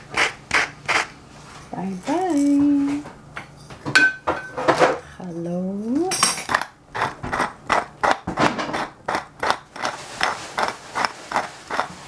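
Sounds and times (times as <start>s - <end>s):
pepper mill grinding: 6.1s - 12.0s.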